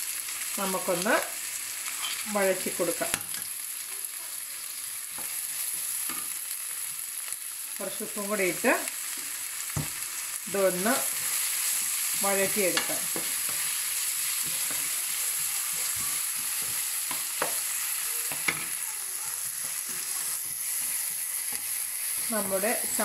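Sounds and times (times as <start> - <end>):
onions sizzling in oil: 0.0 - 23.0
spatula scraping onions: 1.5 - 3.6, 4.6 - 8.0, 8.9 - 23.0
spatula tapping pan: 9.7 - 10.0, 11.0 - 23.0.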